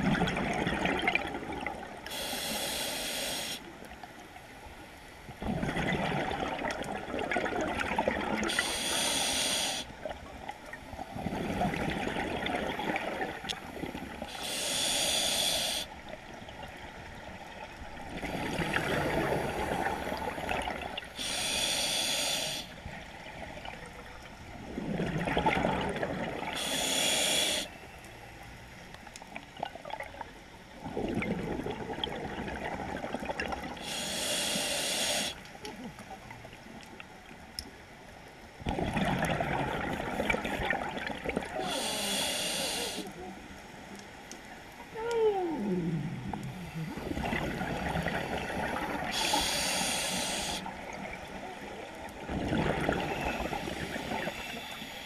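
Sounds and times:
exhaled bubbles gushing: 0:00.0 - 0:02.0, 0:05.4 - 0:08.7, 0:11.0 - 0:14.3, 0:17.7 - 0:21.2, 0:24.5 - 0:26.7, 0:30.8 - 0:34.0, 0:38.6 - 0:41.8, 0:44.9 - 0:54.6
regulator inhale hiss: 0:02.0 - 0:03.8, 0:08.4 - 0:10.0, 0:14.2 - 0:16.1, 0:21.1 - 0:22.9, 0:26.5 - 0:28.0, 0:33.8 - 0:35.5, 0:41.6 - 0:43.1, 0:48.0 - 0:50.9, 0:53.1 - 0:55.0.

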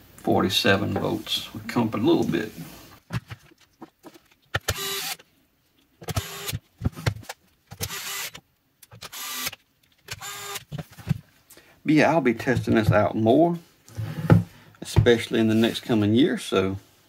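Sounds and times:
electric screwdriver motor whir: 0:04.6 - 0:05.2, 0:06.1 - 0:06.6, 0:07.8 - 0:08.4, 0:09.0 - 0:10.7.

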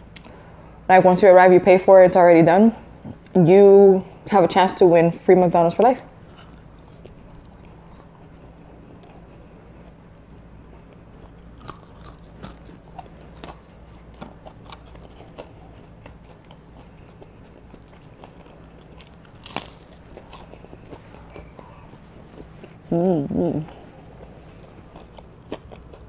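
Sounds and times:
steady low hum: 0:00.0 - 0:26.0
crisp bites and wet chewing: 0:10.7 - 0:22.9.

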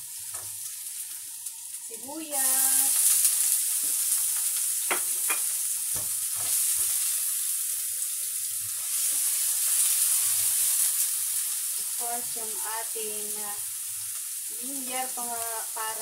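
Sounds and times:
onion sizzling in hot oil: 0:00.0 - 0:16.0
spatula knocking against pan: 0:04.9 - 0:06.2.

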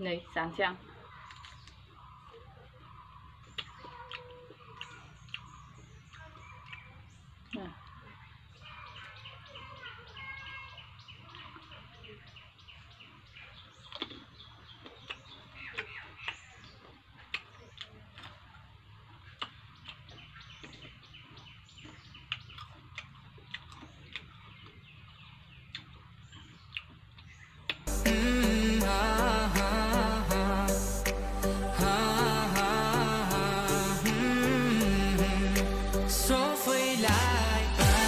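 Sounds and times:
birds chirping: 0:00.0 - 0:38.0
chewing and mouth clicks: 0:00.8 - 0:09.2, 0:11.2 - 0:27.9.

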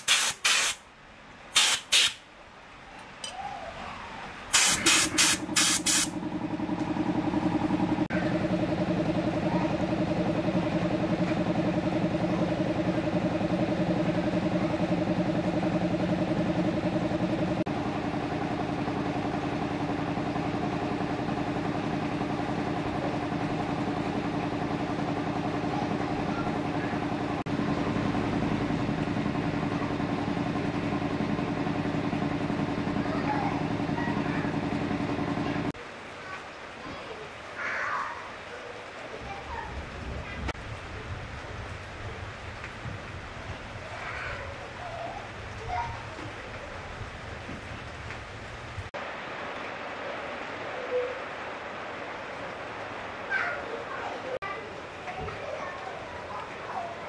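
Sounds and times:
engine humming: 0:02.6 - 0:36.0.

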